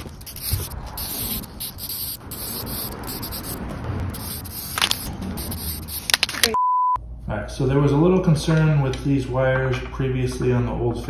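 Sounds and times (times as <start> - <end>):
spray-paint can hissing: 0.0 - 6.6
outdoor background noise: 0.0 - 7.3.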